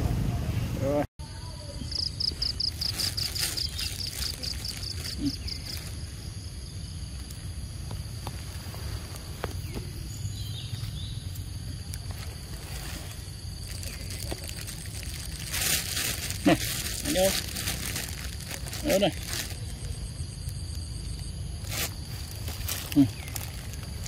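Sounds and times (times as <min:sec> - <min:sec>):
low rumble: 0:00.0 - 0:01.1
fast pulsed insect chirp: 0:01.2 - 0:24.0
high insect drone: 0:01.2 - 0:24.0.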